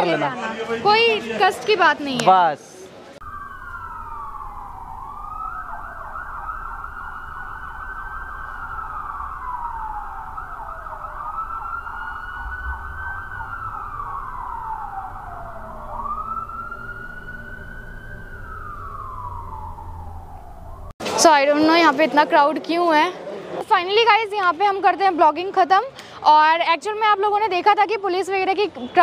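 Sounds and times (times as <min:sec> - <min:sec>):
low street rumble: 0:00.0 - 0:29.0
siren wailing: 0:03.2 - 0:20.9.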